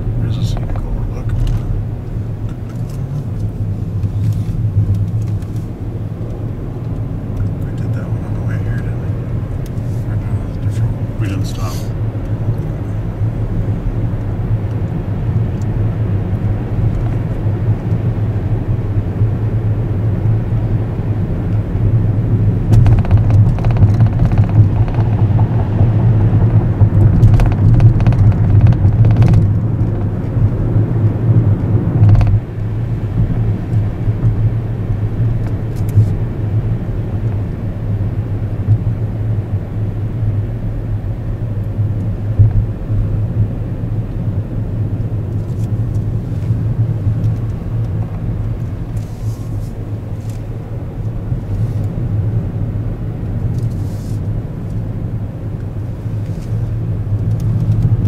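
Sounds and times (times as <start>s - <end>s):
car engine and tyres droning: 0.0s - 58.0s
knocks and rattles: 22.7s - 30.2s.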